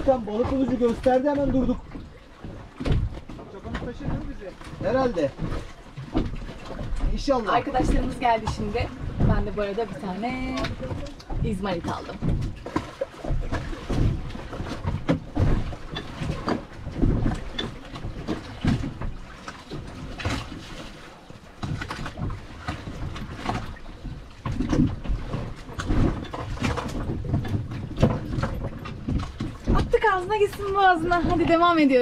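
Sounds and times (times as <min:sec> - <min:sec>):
water lapping against boat hull: 0:00.0 - 0:32.0
wind buffeting microphone: 0:06.3 - 0:12.6, 0:21.6 - 0:32.0.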